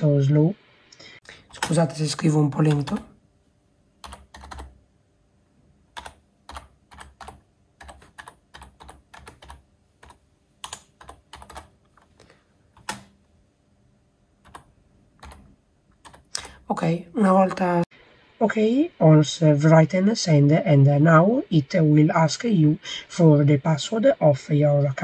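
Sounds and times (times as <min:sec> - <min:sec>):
typing on computer keyboard: 0:02.6 - 0:03.1, 0:04.0 - 0:04.8, 0:05.9 - 0:12.1, 0:12.8 - 0:13.1, 0:14.4 - 0:16.6.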